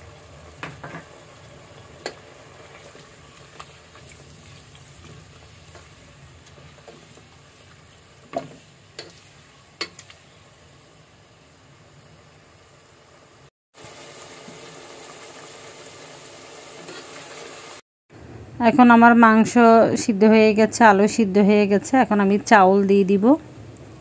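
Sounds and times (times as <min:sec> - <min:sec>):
food sizzling in oil: 0:00.0 - 0:17.8.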